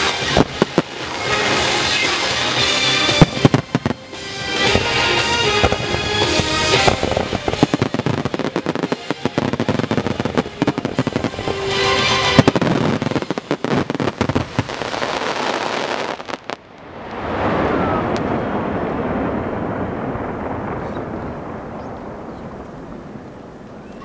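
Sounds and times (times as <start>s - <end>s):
music: 0.0s - 14.8s
fireworks bangs and crackling: 0.0s - 24.0s
steady rushing noise: 0.0s - 24.0s.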